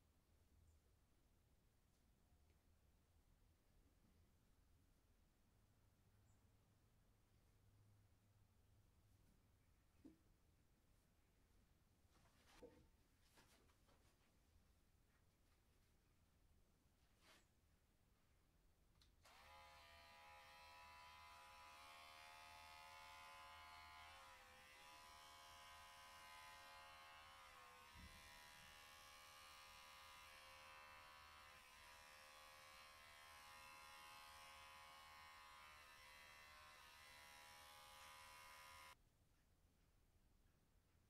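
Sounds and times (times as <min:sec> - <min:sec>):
electric hair clipper buzzing: 0:19.2 - 0:39.0.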